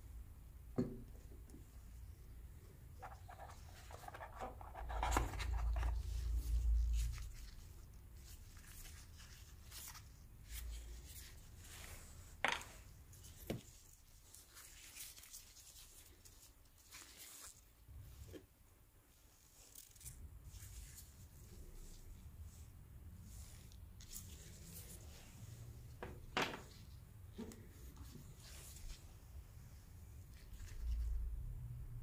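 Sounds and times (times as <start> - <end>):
cardboard rustling and scraping: 3.0 - 7.4.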